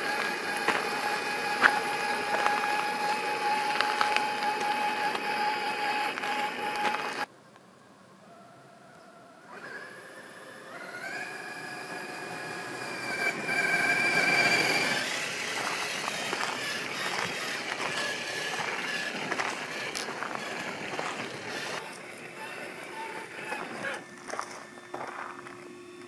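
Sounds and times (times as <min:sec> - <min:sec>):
toy car electric motor whining: 0:00.0 - 0:07.3, 0:09.5 - 0:25.2
tyres crunching over gravel: 0:00.0 - 0:07.3, 0:12.6 - 0:25.7.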